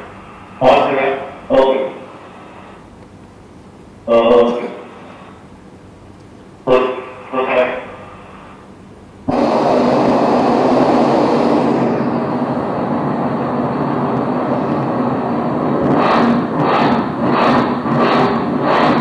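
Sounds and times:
regular pulsing: 0.0 - 19.0
helicopter rotor and engine: 9.3 - 15.8.

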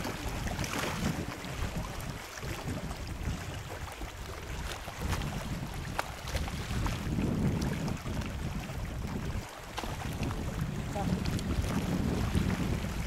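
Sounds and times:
water lapping against boat: 0.0 - 13.0
wind buffeting microphone: 0.0 - 13.0.

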